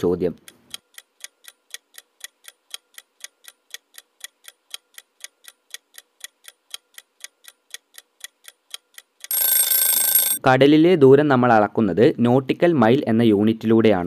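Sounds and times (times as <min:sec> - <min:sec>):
clock ticking: 0:00.0 - 0:10.4
ringing alarm bell: 0:09.3 - 0:10.4.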